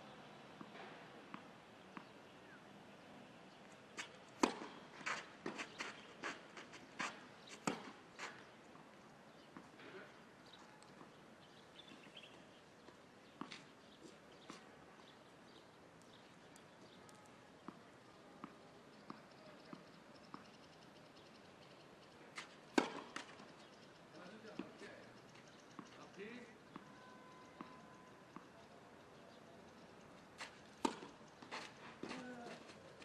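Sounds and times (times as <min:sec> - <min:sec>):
tennis ball struck and bouncing: 0:04.0 - 0:06.0, 0:07.0 - 0:08.4, 0:22.8 - 0:23.3, 0:30.4 - 0:32.5.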